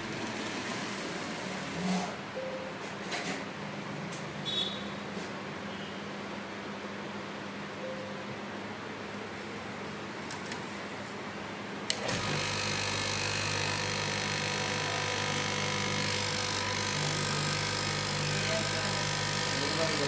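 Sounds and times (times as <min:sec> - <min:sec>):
cloth cutting machine humming: 0:00.0 - 0:02.2, 0:11.8 - 0:20.0.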